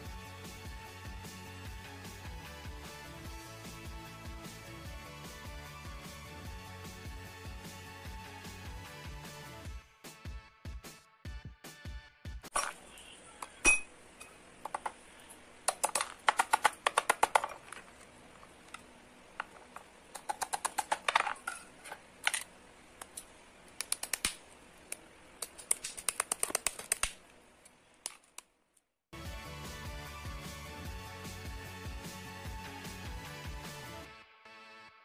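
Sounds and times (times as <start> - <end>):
background music: 0.0 - 12.5, 29.2 - 35.0.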